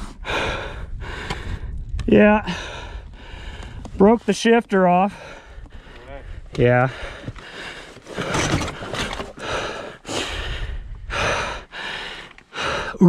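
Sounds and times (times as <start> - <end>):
person panting: 0.0 - 1.8, 2.4 - 3.9, 5.1 - 8.4, 9.3 - 13.0.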